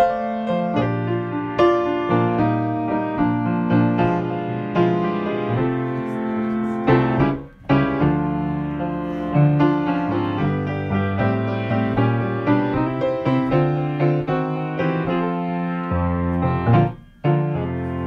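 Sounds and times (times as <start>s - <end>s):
solo piano music: 0.0s - 18.0s.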